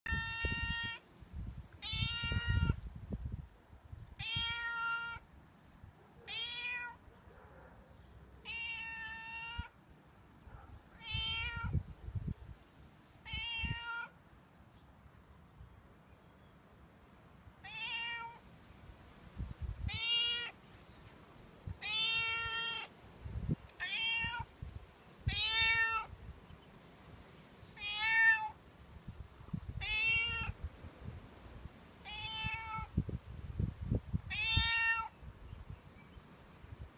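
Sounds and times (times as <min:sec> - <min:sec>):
cat meowing: 0:00.1 - 0:01.0, 0:01.8 - 0:02.8, 0:04.2 - 0:05.2, 0:06.2 - 0:07.0, 0:08.4 - 0:09.8, 0:11.0 - 0:11.8, 0:13.2 - 0:14.1, 0:17.6 - 0:18.4, 0:19.8 - 0:20.6, 0:21.8 - 0:22.9, 0:23.8 - 0:24.5, 0:25.2 - 0:26.1, 0:27.8 - 0:28.5, 0:29.8 - 0:30.6, 0:32.0 - 0:32.9, 0:34.2 - 0:35.2.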